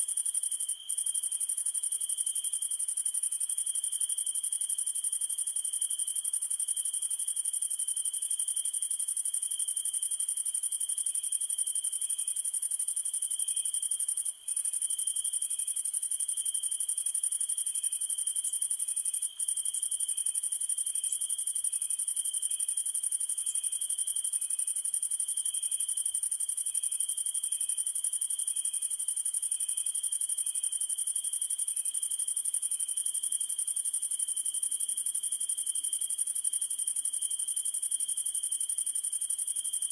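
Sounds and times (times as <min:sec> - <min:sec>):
faint insect chirp: 0:00.0 - 0:39.9.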